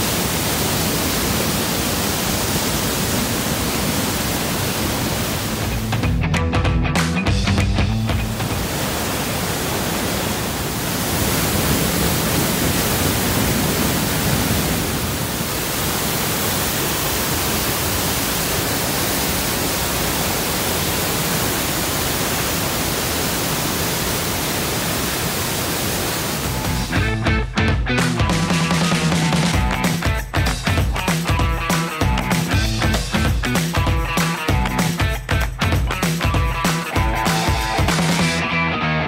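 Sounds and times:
rushing white water: 0:00.0 - 0:06.1, 0:08.0 - 0:27.0.

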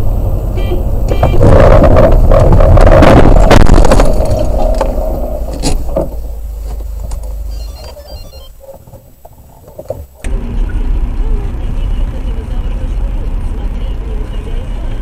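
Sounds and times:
low rumble: 0:00.0 - 0:08.3, 0:10.1 - 0:15.0
car crash crunching and scraping: 0:01.1 - 0:10.7.

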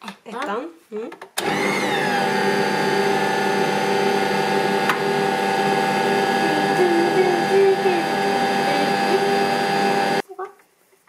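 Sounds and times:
kitchen machine motor whirring: 0:01.4 - 0:10.2.

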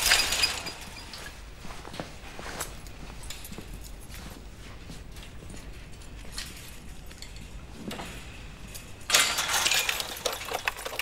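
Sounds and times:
metallic rattling and jangling: 0:00.0 - 0:01.5, 0:05.1 - 0:11.0
low background hum: 0:00.0 - 0:11.0.

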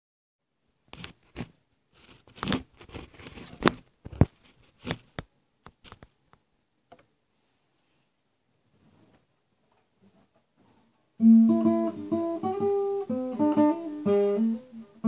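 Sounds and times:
fabric rustling on microphone: 0:00.9 - 0:05.2.

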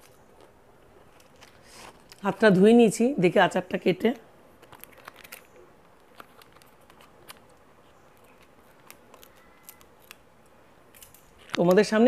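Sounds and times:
plastic sachet crinkling: 0:04.1 - 0:11.9.

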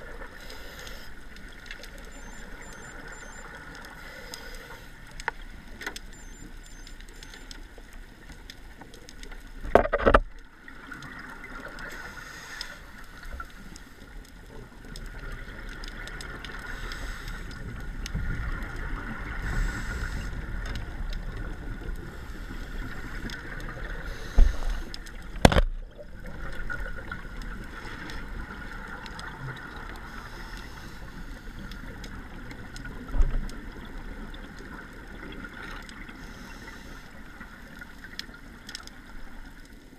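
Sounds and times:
underwater rumble and hiss: 0:00.0 - 0:39.9.

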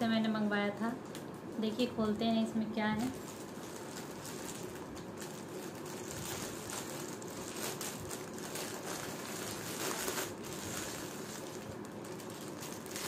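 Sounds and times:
plastic packaging crinkling: 0:03.0 - 0:13.0.

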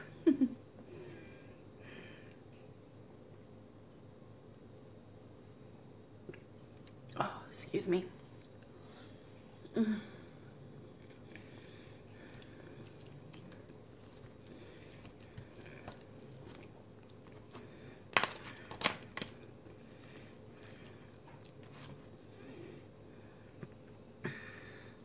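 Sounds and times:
soft chewing: 0:06.2 - 0:07.2, 0:08.1 - 0:09.7, 0:10.3 - 0:25.0.

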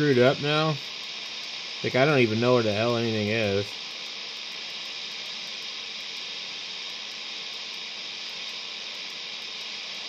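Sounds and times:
radio static hiss: 0:00.0 - 0:10.0.

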